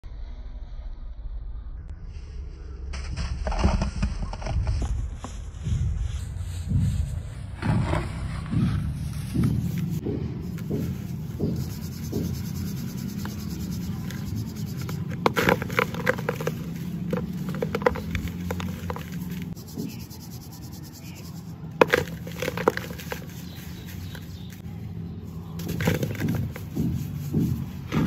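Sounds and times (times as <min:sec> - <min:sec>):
dry sand crumbling by hand: 0:09.2 - 0:24.6, 0:25.5 - 0:28.0.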